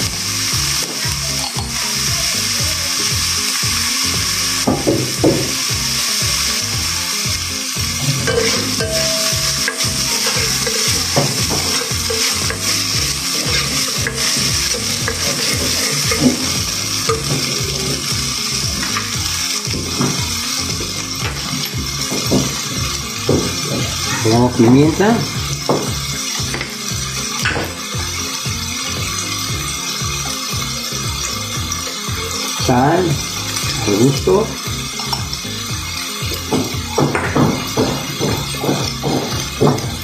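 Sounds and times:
onion and tomato sizzling in oil: 0.0 - 40.0
spatula scraping a pot: 7.9 - 24.6.

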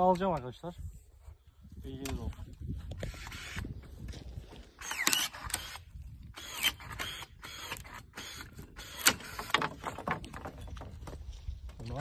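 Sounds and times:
pruner clicks and snips: 4.8 - 9.2.

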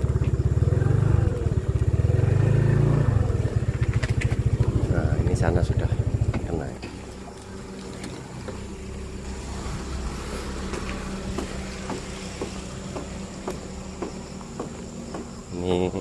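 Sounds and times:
motorcycle engine idling low: 0.0 - 16.0.

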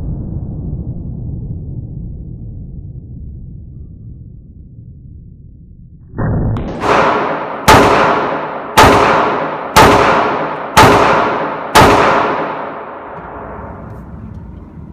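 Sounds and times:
pistol shots echoing: 6.7 - 13.7.

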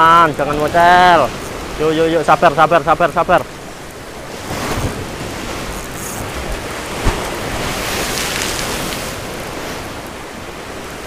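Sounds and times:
surf washing onto beach: 0.0 - 11.0
wind on microphone: 3.6 - 11.0.

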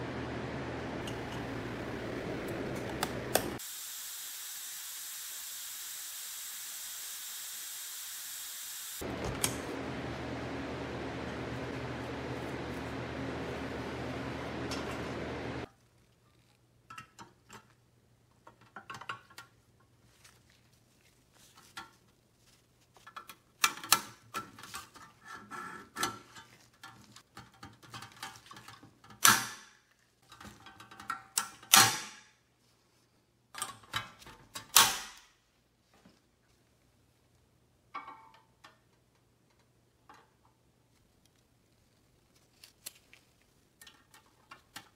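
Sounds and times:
oven fan running: 0.0 - 3.6, 9.0 - 15.7.

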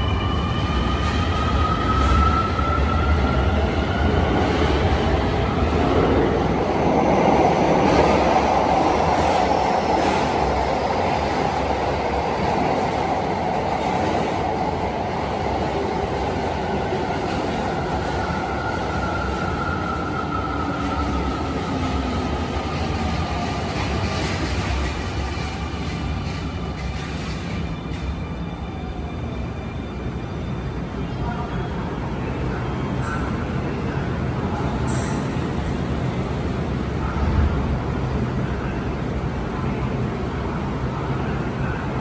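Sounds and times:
train wheels rumbling on rail: 0.0 - 29.1.

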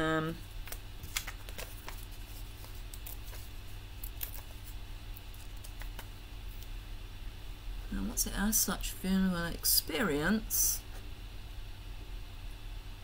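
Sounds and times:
steady low hum: 0.0 - 13.0
card stock rustling and tapping: 0.6 - 6.1.

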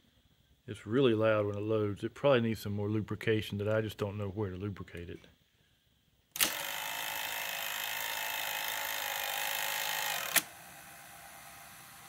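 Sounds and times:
loud mechanical whirring: 6.4 - 12.0.

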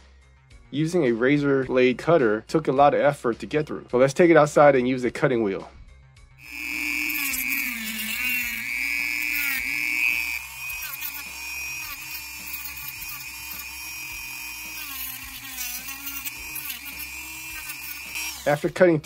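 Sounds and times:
cutting wheel whining through plastic: 6.4 - 18.7.

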